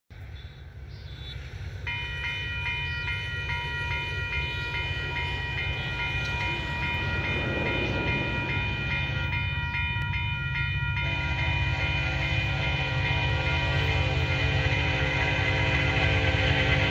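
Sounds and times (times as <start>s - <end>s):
crossing warning bell ringing: 1.1s - 16.9s
locomotive horn: 10.9s - 16.9s.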